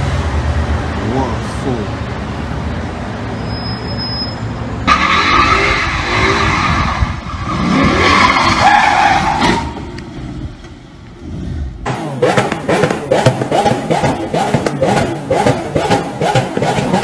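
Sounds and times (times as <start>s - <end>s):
street traffic noise: 0.0s - 17.0s
car tyres squealing: 3.3s - 10.2s, 12.2s - 17.0s
car engine revving: 4.9s - 17.0s.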